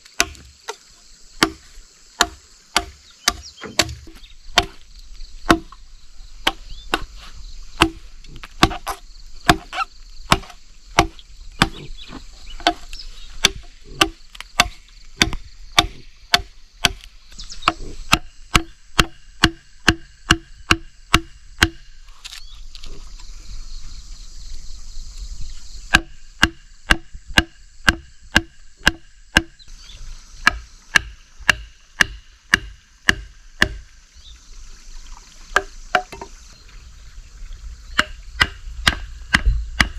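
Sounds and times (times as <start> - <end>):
mallet striking chisel: 0.2 - 0.5, 2.2 - 4.8, 5.5 - 5.8, 8.6 - 11.8, 17.6 - 21.9, 25.9 - 29.6, 30.4 - 33.8, 38.0 - 39.9.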